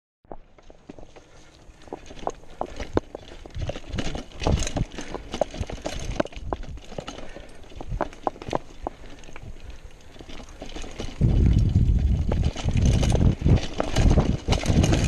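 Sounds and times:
bike rattling over stones: 0.3s - 15.0s
tyres crunching on dirt: 0.3s - 15.0s
low rumble: 11.1s - 15.0s.

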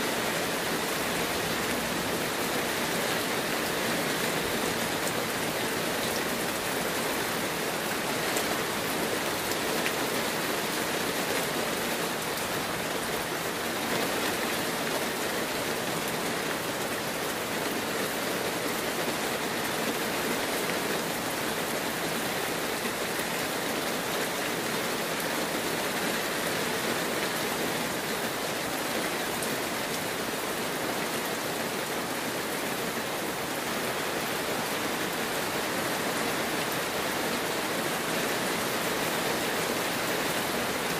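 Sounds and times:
heavy rain: 0.0s - 40.9s.

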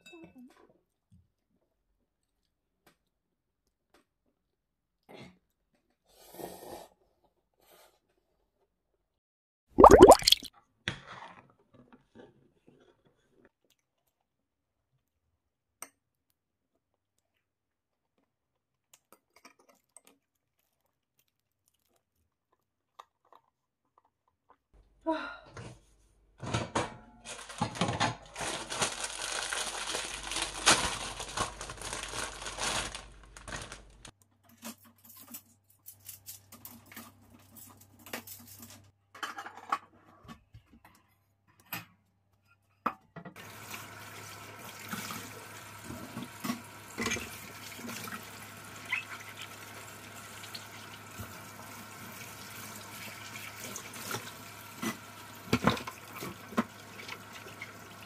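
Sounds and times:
tap water running into sink: 43.4s - 58.0s.

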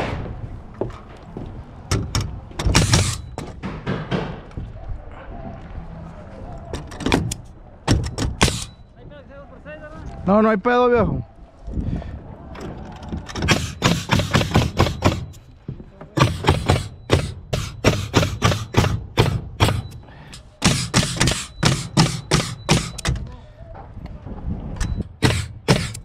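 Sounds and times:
nail gun firing: 2.0s - 4.4s, 7.1s - 8.7s, 13.4s - 15.3s, 16.2s - 20.0s, 20.6s - 23.2s, 25.2s - 26.0s.

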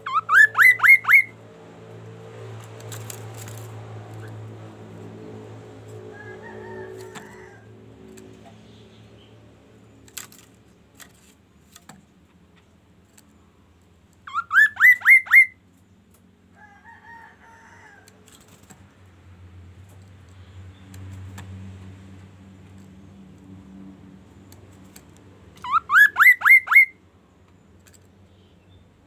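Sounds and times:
drawn-out bird call: 0.0s - 1.4s, 14.2s - 15.6s, 25.6s - 27.0s
songbird whistling: 0.0s - 1.4s, 14.3s - 15.6s, 25.6s - 27.0s.

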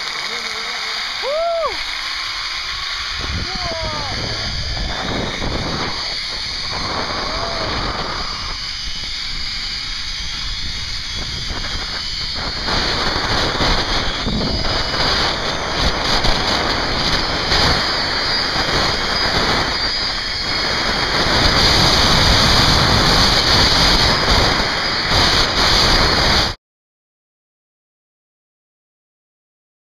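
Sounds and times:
pulleys running along cable: 0.0s - 26.6s
wind rushing over microphone: 2.7s - 26.6s.

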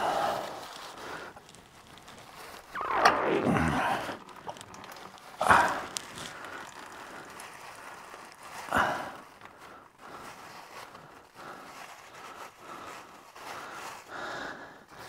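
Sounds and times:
paper towel rubbing and rustling: 0.2s - 14.2s.

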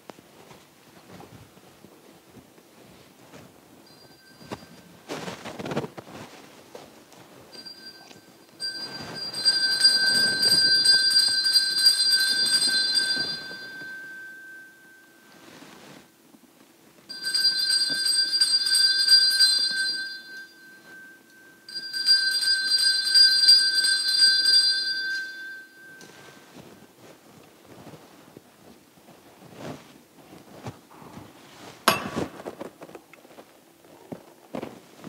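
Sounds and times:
altar bell ringing: 3.8s - 5.0s, 7.5s - 16.0s, 17.1s - 26.8s, 31.9s - 32.6s.

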